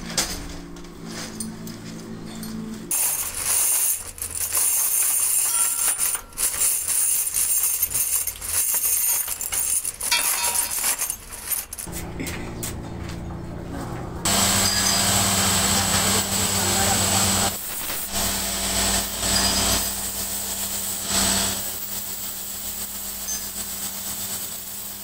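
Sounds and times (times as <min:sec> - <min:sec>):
metal levers clinking in crate: 0:01.2 - 0:11.9
low hum: 0:11.9 - 0:18.8.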